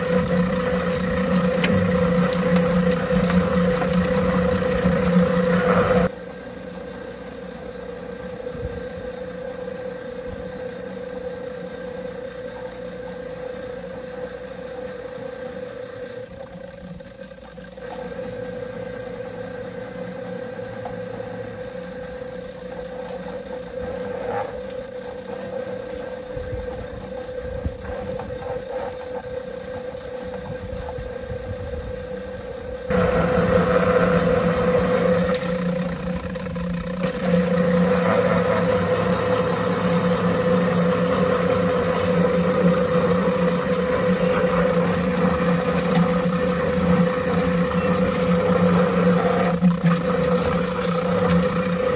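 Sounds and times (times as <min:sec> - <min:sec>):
water spraying from hose: 0:00.0 - 0:06.1, 0:32.9 - 0:51.9
plucker motor hum: 0:00.0 - 0:51.9.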